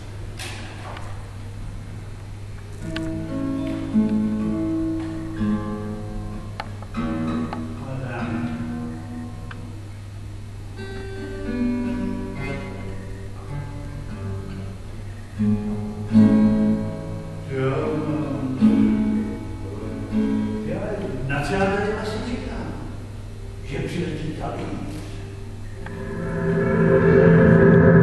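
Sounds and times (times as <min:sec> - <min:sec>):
acoustic guitar playing: 0:00.0 - 0:23.7, 0:24.8 - 0:28.0.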